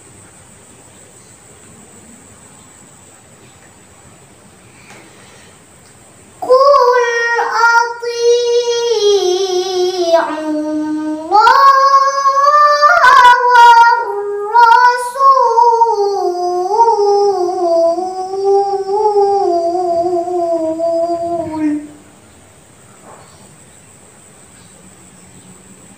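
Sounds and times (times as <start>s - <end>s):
short breaths: 4.7s - 5.7s
girl reciting melodically: 5.2s - 22.3s.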